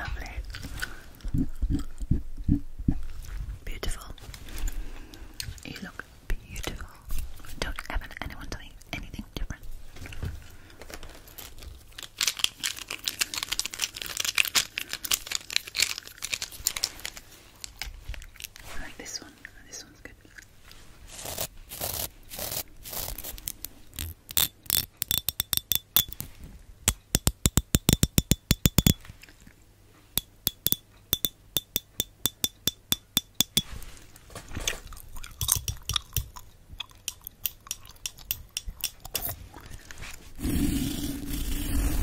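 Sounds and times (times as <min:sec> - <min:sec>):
metal comb teeth clicking: 0:24.0 - 0:26.2, 0:26.9 - 0:29.0, 0:30.2 - 0:33.6, 0:35.3 - 0:39.4.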